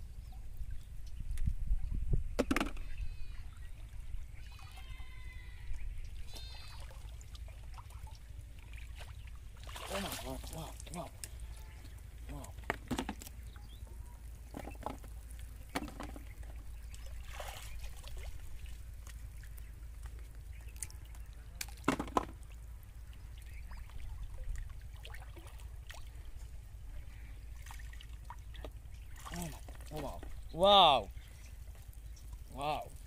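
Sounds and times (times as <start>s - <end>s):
low steady rumble: 0.0s - 33.0s
water trickling and sloshing: 2.7s - 33.0s
small splashes and knocks: 6.2s - 26.6s, 27.5s - 30.5s.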